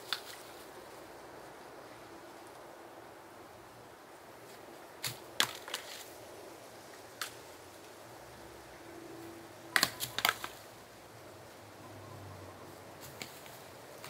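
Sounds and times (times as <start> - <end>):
coconuts knocking together: 5.0 - 6.0, 9.8 - 10.6.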